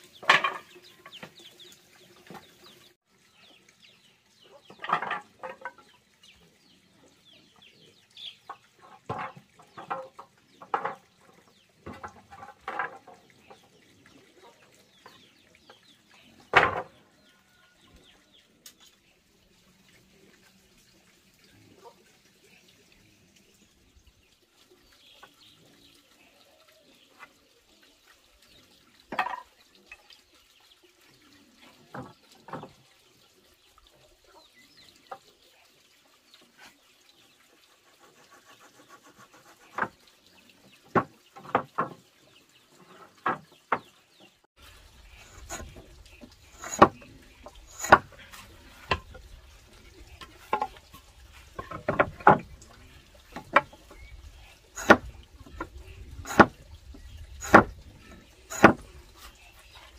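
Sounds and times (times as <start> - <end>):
tools tapping on wood: 9.1 - 11.1, 40.9 - 42.0, 46.6 - 47.0, 47.7 - 48.2, 57.4 - 57.7, 58.5 - 58.8.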